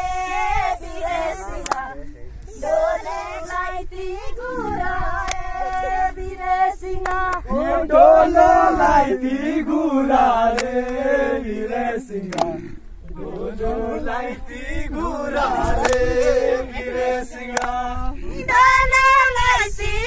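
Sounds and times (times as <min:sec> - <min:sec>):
group of people singing: 0:00.0 - 0:20.0
sharp clicks: 0:12.3 - 0:12.6.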